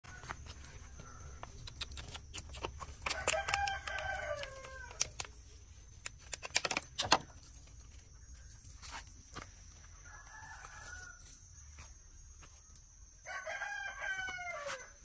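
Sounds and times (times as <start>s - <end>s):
sharp clicks and crackles: 1.4s - 8.0s
rooster crowing: 3.0s - 5.1s, 10.0s - 11.4s, 13.2s - 15.0s.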